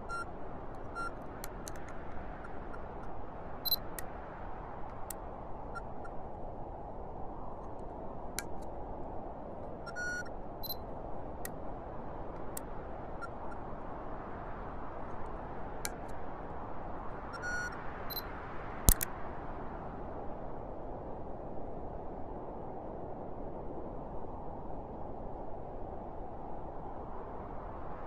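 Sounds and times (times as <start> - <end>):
short electronic beeps: 0.0 - 0.3, 3.7 - 3.9, 9.9 - 10.8, 17.4 - 18.2
faint clicks: 0.7 - 2.2, 18.9 - 19.1
sharp loud click: 18.9 - 19.1.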